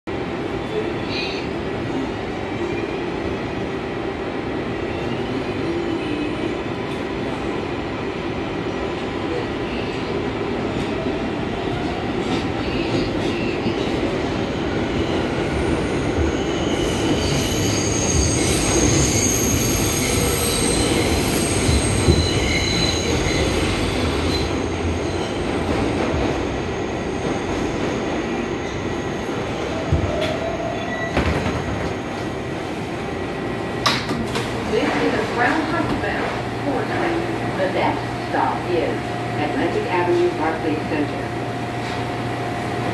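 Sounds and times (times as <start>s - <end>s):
rumble of wheels on rail: 0.1s - 42.9s
high-pitched wheel squeal: 16.4s - 23.5s.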